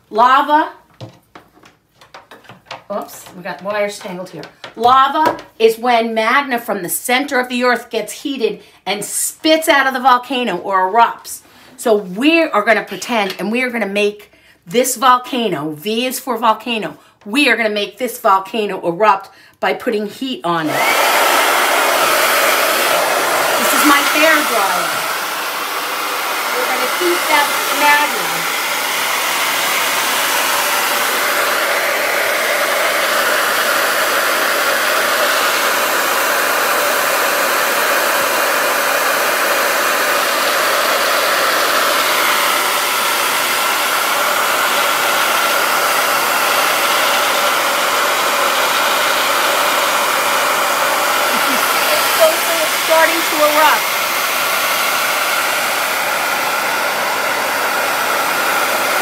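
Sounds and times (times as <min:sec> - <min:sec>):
hair dryer running: 0:20.6 - 0:59.0.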